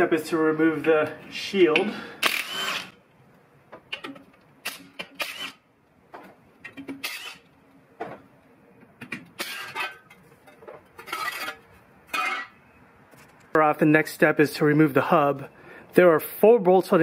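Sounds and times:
cordless driver spinning bolts: 0:02.2 - 0:03.0.

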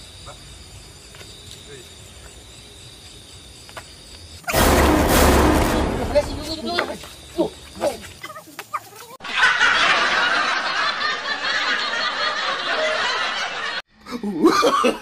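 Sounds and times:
laugh track: 0:09.2 - 0:15.0.

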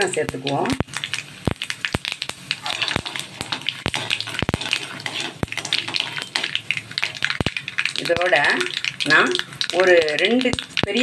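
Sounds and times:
oil sizzling: 0:00.0 - 0:11.0
seeds popping: 0:00.0 - 0:11.0
metal spatula stirring: 0:00.6 - 0:11.0.

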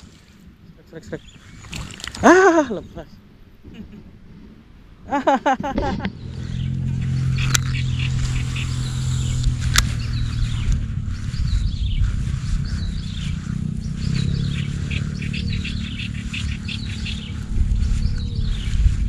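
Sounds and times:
small birds chirping: 0:00.7 - 0:02.1, 0:06.1 - 0:19.0
low rumble with faint hum: 0:02.2 - 0:19.0
sharp click: 0:09.4 - 0:09.9.

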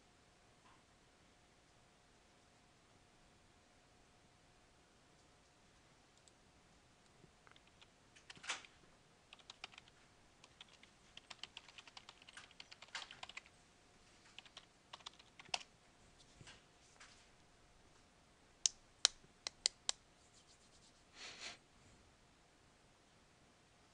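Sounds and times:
typing on computer keyboard: 0:07.5 - 0:13.5, 0:14.3 - 0:15.7.

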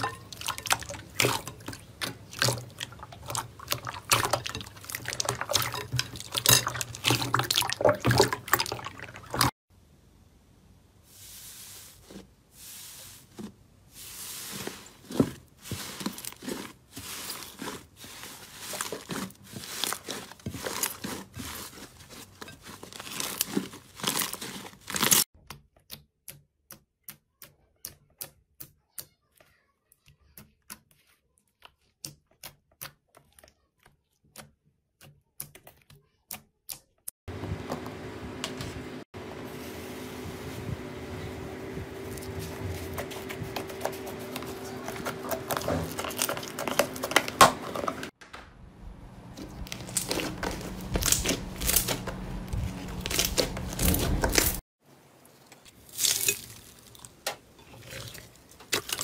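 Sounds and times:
hand stroking fibrous slime: 0:11.0 - 0:25.2
hands squishing slime: 0:13.1 - 0:25.9.

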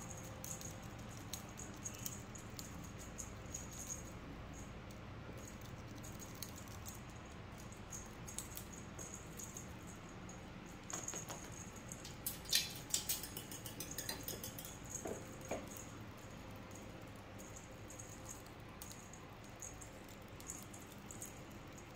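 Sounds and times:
toy bell jingling: 0:00.0 - 0:04.7, 0:07.6 - 0:21.9
clicks and clatter on tiles: 0:10.9 - 0:15.9.

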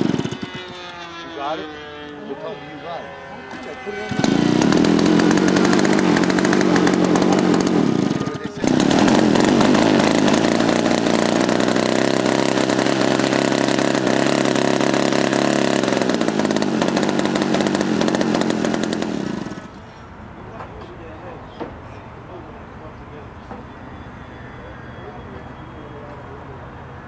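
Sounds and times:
model airplane engine running: 0:00.0 - 0:19.9.

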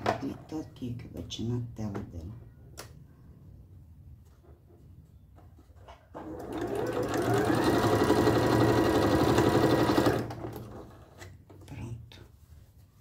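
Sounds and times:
sewing machine stitching: 0:06.1 - 0:11.3.

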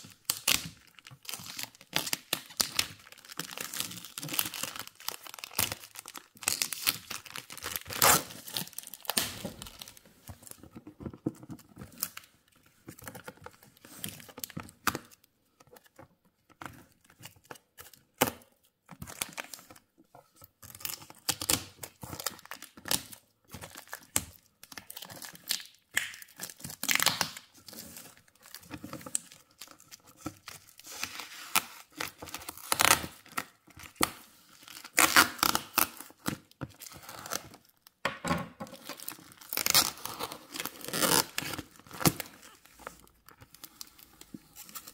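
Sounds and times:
plastic wrap crinkling: 0:00.0 - 0:15.2, 0:38.6 - 0:44.9
tape ripping: 0:06.4 - 0:09.9, 0:34.8 - 0:36.3, 0:38.8 - 0:42.6.

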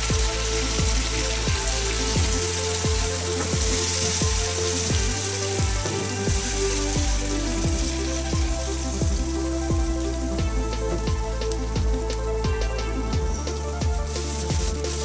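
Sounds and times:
background music with beat: 0:00.0 - 0:15.0
shrimp sizzling: 0:00.0 - 0:15.0.

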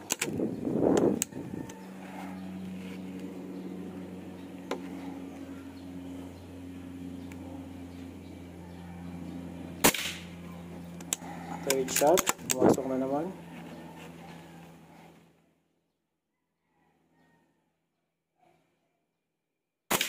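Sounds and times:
low machine hum: 0:00.0 - 0:15.9.

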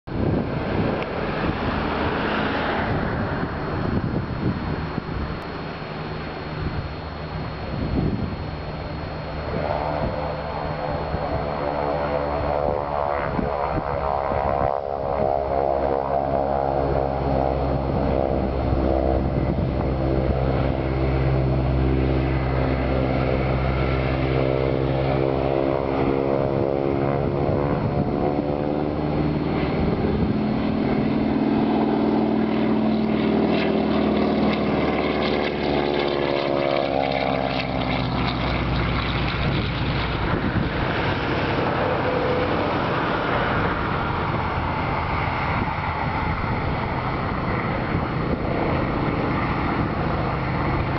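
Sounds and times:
propeller airplane droning past: 0:00.0 - 0:50.9.

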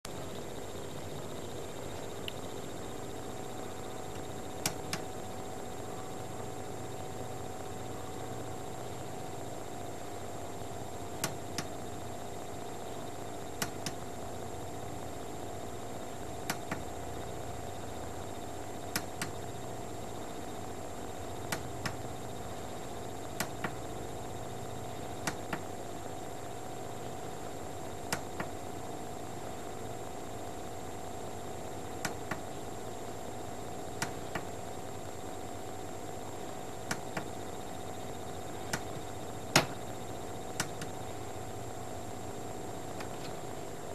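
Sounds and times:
electrical hum with whine: 0:00.1 - 0:43.9
sharp clicks: 0:04.1 - 0:05.1, 0:38.6 - 0:39.9, 0:40.6 - 0:41.1.

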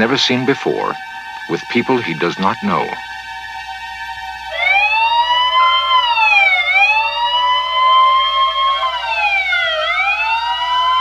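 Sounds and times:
wailing siren: 0:00.0 - 0:11.0.

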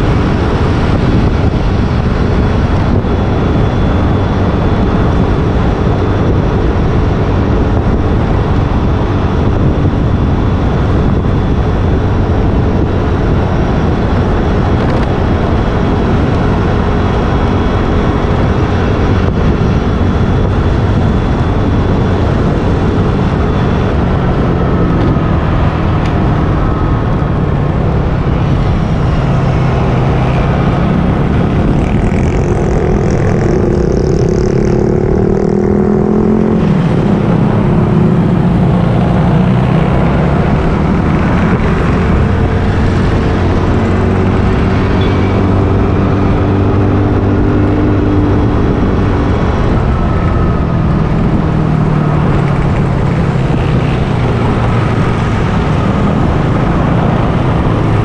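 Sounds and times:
motorcycle engine running: 0:00.0 - 0:58.0
steady rushing noise: 0:00.0 - 0:58.0.

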